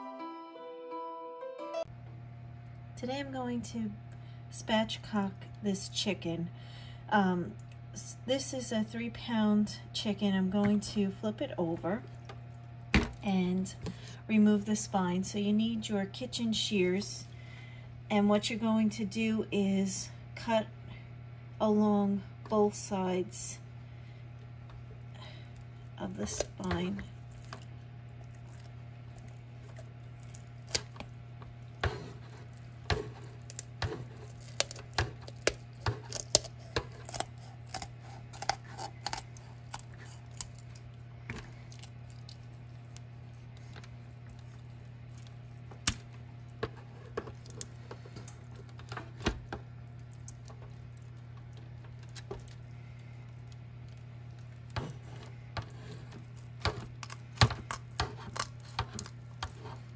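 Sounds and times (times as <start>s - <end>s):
low hum: 1.9s - 59.9s
shears crunching through bones: 25.5s - 59.9s.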